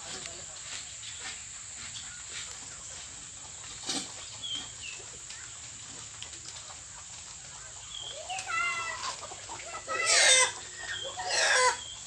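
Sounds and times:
bird chirps: 0:04.2 - 0:05.5.

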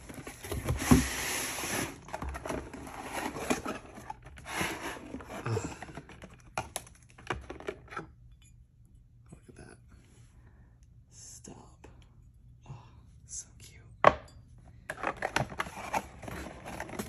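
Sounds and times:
packaging rustling and crinkling: 0:15.0 - 0:17.0.

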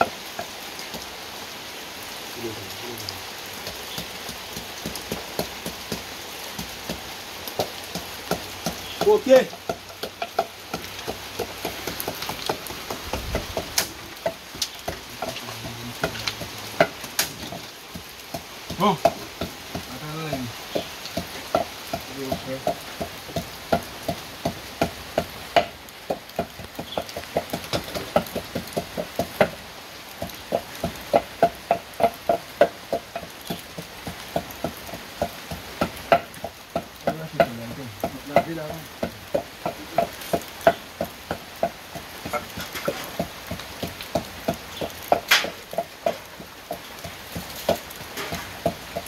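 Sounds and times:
steady sizzle: 0:00.0 - 0:49.0
utensil knocking metal pot: 0:30.2 - 0:49.0.

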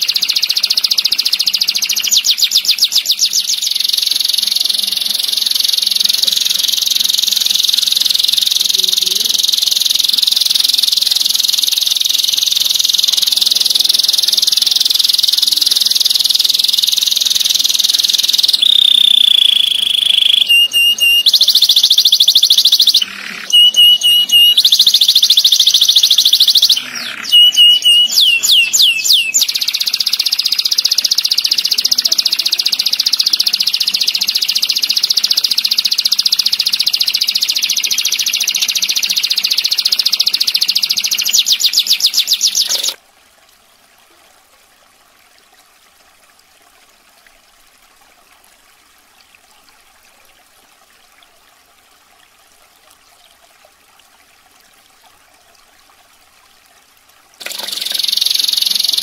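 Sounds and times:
canary singing trills: 0:00.0 - 0:43.0, 0:57.4 - 0:59.0.

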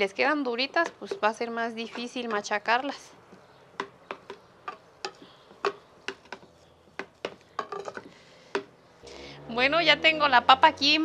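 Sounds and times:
potato masher knocking clay bowl: 0:00.6 - 0:02.5, 0:03.8 - 0:08.7.

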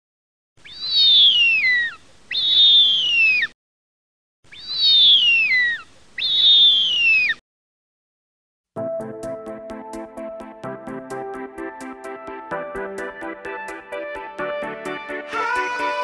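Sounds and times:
bird of prey screeching: 0:00.6 - 0:03.6, 0:04.5 - 0:07.4.

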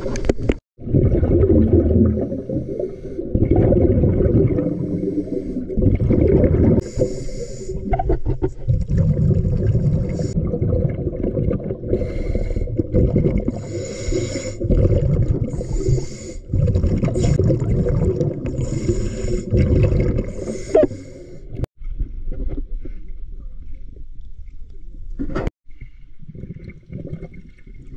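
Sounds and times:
exhaled air bubbling: 0:00.0 - 0:21.7, 0:26.1 - 0:27.9
diver inhaling through regulator: 0:04.7 - 0:05.8, 0:06.8 - 0:07.9, 0:11.9 - 0:14.7, 0:15.4 - 0:17.5, 0:18.5 - 0:21.6.

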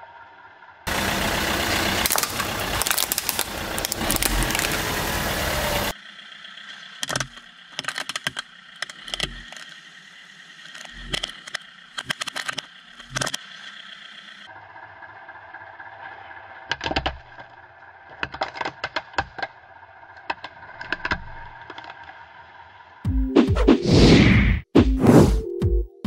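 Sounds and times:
car engine running: 0:00.0 - 0:24.0
plastic toy cracking under tyre: 0:02.0 - 0:04.9, 0:07.0 - 0:09.7, 0:10.7 - 0:13.4, 0:16.7 - 0:22.2.

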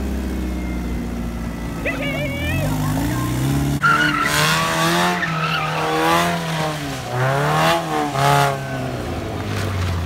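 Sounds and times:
car engine revving: 0:00.0 - 0:10.0
tyres squealing on concrete: 0:01.9 - 0:06.5.

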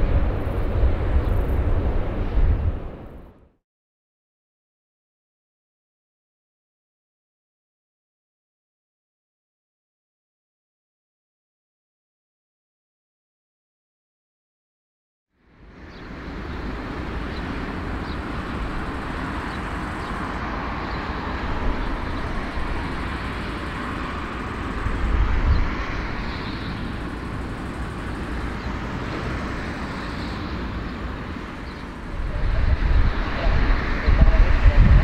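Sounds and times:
jet engines rumbling: 0:00.0 - 0:03.4, 0:15.5 - 0:35.0
wind on microphone: 0:00.0 - 0:03.4, 0:16.1 - 0:35.0.

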